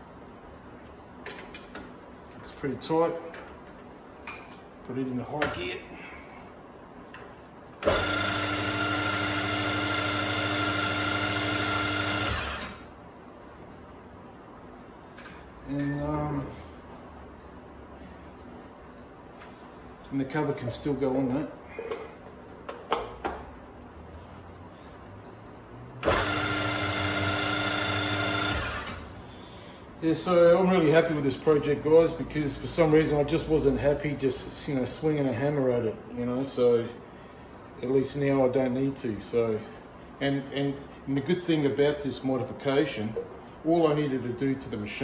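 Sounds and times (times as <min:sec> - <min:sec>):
mill spindle humming and whining: 0:07.1 - 0:13.0, 0:24.2 - 0:29.2.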